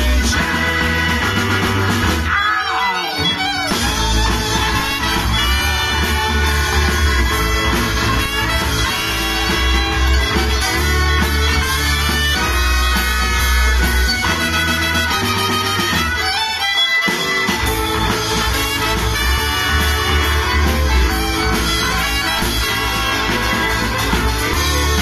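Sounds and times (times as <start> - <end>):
live band playing blues: 0.0 - 25.0.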